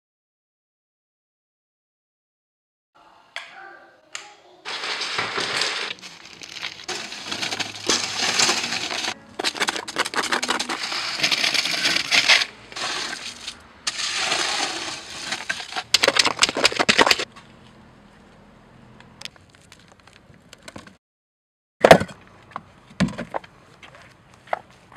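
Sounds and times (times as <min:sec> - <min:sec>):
wet concrete pouring and scraping: 0:04.7 - 0:17.3.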